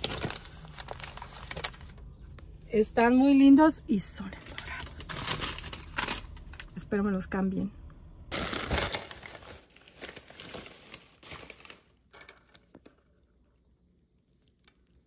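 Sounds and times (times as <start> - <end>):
plastic bag rustling: 0.0 - 2.0, 4.4 - 6.7, 8.3 - 12.3.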